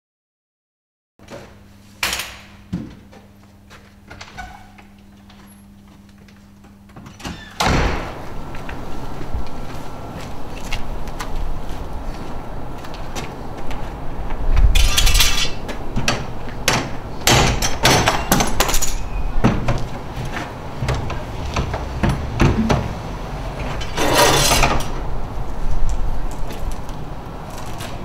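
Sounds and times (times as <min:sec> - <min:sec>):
knocks and clanks on garage door: 0:14.8 - 0:25.0
rough scraping: 0:22.6 - 0:24.9.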